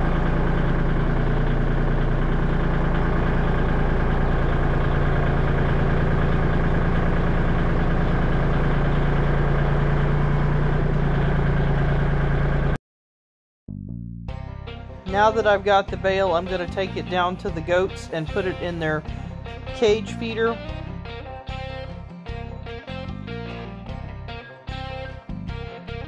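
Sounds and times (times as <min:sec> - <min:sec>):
tractor diesel engine running: 0:00.0 - 0:12.8, 0:14.8 - 0:21.2.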